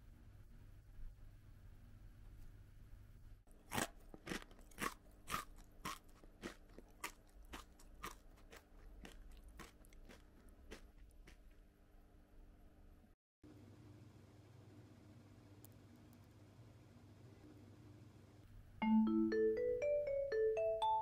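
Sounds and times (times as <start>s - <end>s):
dry noodles being chewed: 3.5s - 11.6s.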